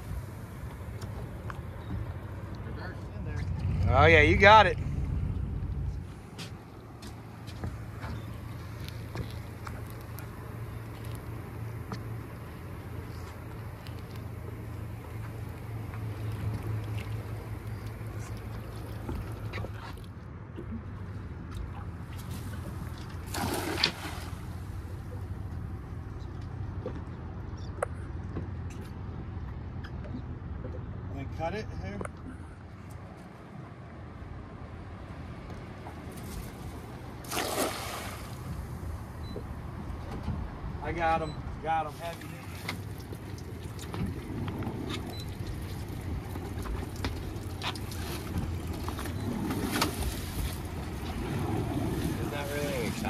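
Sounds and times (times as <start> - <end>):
wind rumble on microphone: 0.0 - 19.9
boat engine idling: 0.0 - 23.3, 38.3 - 53.0
cast net splashing into water: 23.2 - 24.5, 37.2 - 38.4.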